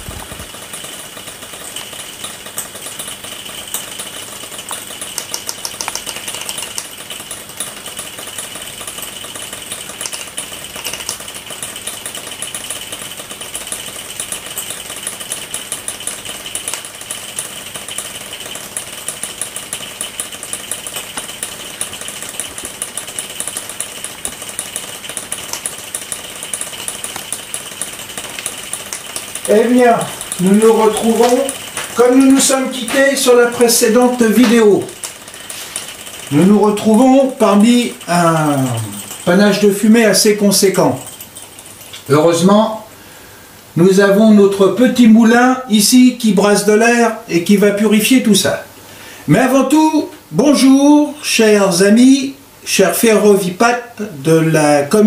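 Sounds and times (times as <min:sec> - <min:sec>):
model train mechanical whir: 0:00.0 - 0:42.4
quick clicks of wheels: 0:00.1 - 0:37.0.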